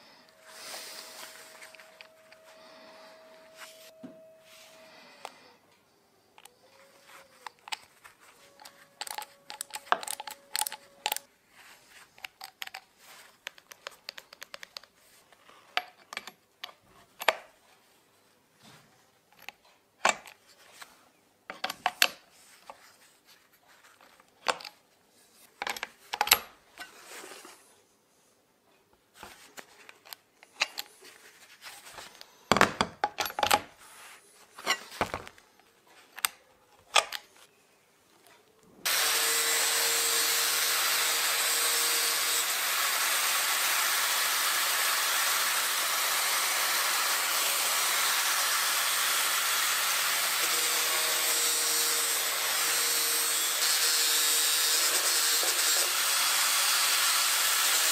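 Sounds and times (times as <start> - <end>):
angle grinder cutting steel: 0.0 - 5.4, 38.9 - 57.9.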